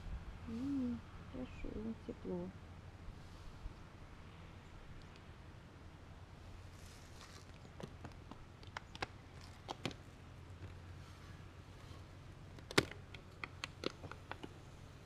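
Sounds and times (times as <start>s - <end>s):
small clicks and taps of hands: 7.8s - 10.0s.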